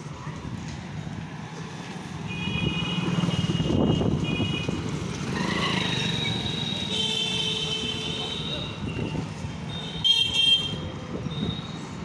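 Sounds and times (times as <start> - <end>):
motorcycle passing: 2.0 - 6.9.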